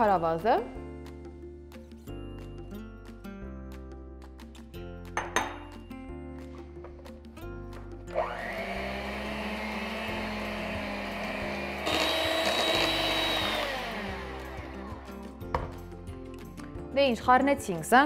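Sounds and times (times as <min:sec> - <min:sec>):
background music: 0:00.0 - 0:18.0
electric hand mixer whining: 0:08.1 - 0:15.4.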